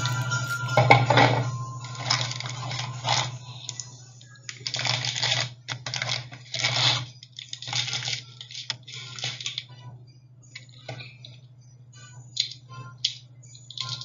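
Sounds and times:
steady low hum: 0.0s - 5.8s
plastic toy pieces crinkling and clicking: 4.5s - 9.8s, 12.4s - 14.0s.

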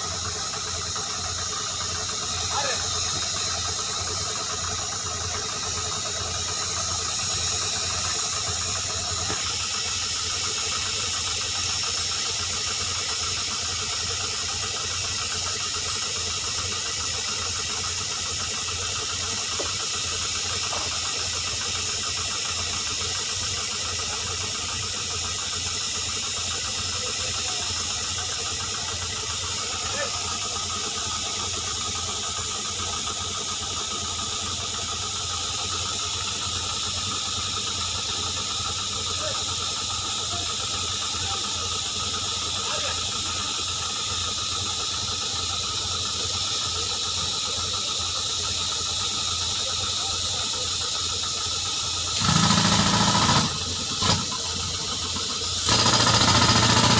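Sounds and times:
compressed air hiss: 0.0s - 56.9s
tractor engine drone: 0.0s - 56.9s.

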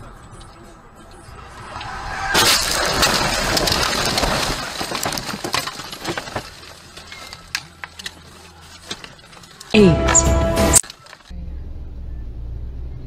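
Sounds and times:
windshield cracking: 1.2s - 9.8s, 10.8s - 11.3s
car crashing into bushes: 1.4s - 7.8s
glass and debris clinking: 1.5s - 11.3s
branches snapping and clicking: 2.4s - 9.8s, 10.8s - 11.3s.

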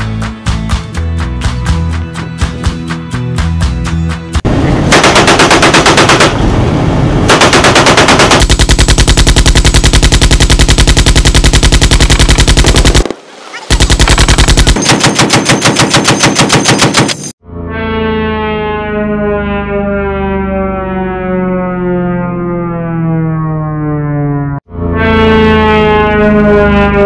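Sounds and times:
machine guns firing bursts: 4.9s - 6.4s, 7.3s - 13.1s, 13.7s - 17.3s.

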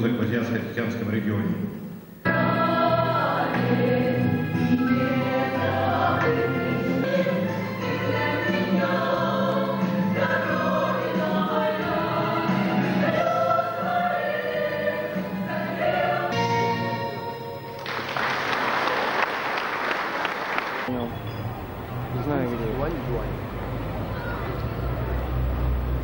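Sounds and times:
choir singing: 2.2s - 18.2s
audience applause: 17.8s - 21.6s.

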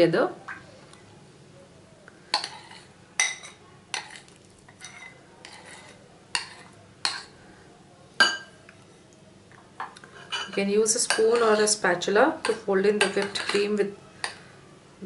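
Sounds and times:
metal spoon clinking against bowl: 2.3s - 7.3s, 10.2s - 11.8s, 12.4s - 14.4s.

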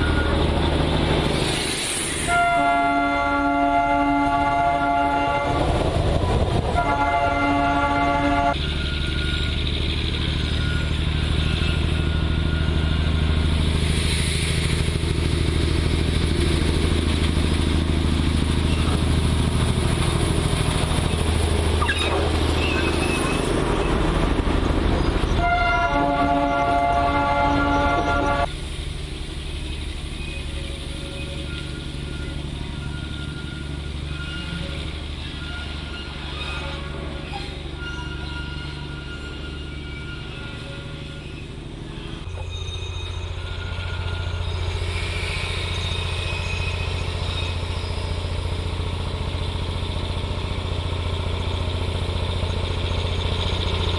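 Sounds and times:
diesel locomotive engine drone: 0.0s - 53.9s
train horn chord: 2.3s - 5.6s, 6.8s - 8.6s, 25.4s - 28.5s.

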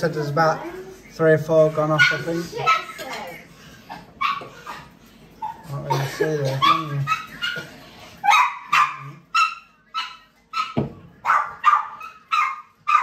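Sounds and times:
dog barking high-pitched: 2.0s - 3.1s, 4.2s - 4.6s, 6.6s - 13.0s.

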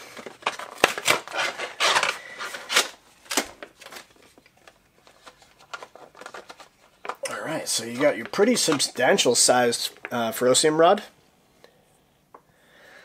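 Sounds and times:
cardboard packaging rubbing and scraping: 0.4s - 3.0s.

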